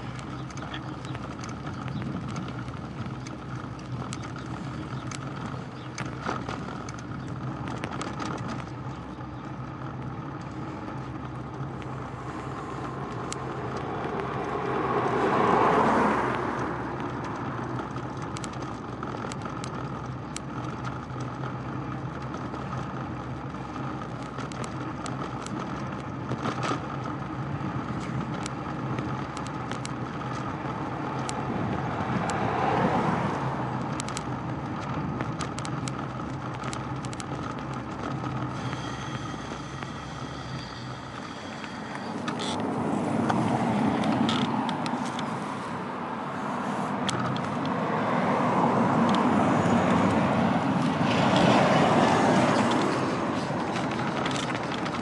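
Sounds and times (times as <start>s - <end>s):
bicycle rolling on road: 0.0s - 55.0s
faint clicks: 0.1s - 14.6s, 27.9s - 30.5s, 32.2s - 45.6s
car passing by: 12.2s - 17.4s, 32.0s - 33.6s, 41.9s - 54.6s.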